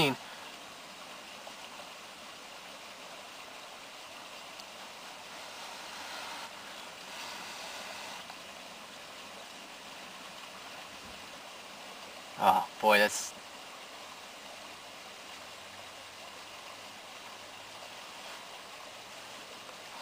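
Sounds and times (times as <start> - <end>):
faint steady hiss: 0.0 - 20.0.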